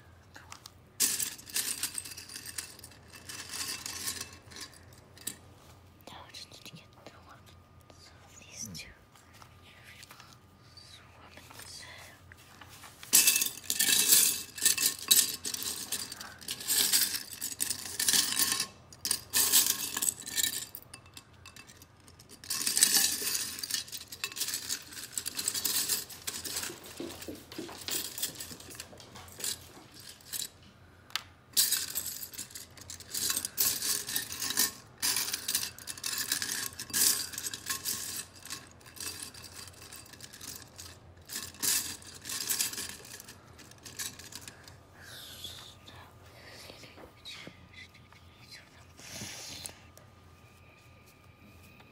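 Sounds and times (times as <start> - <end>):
plastic bricks clattering in a bowl: 13.2 - 30.6, 31.6 - 44.5.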